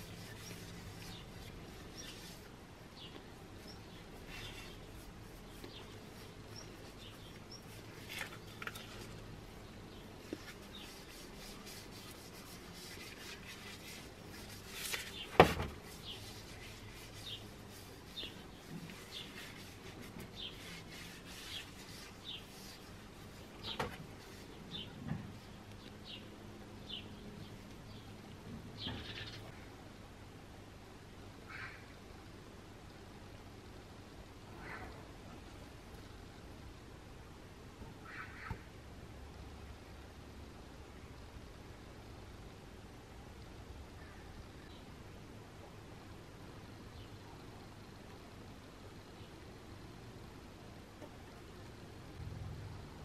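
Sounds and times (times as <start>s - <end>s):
gloved hands rubbing wood: 0.0s - 9.2s, 10.1s - 24.6s.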